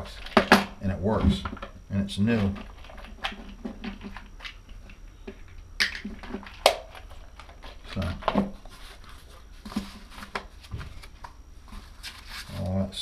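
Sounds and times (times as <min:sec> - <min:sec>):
paper rustling: 0:07.3 - 0:12.9.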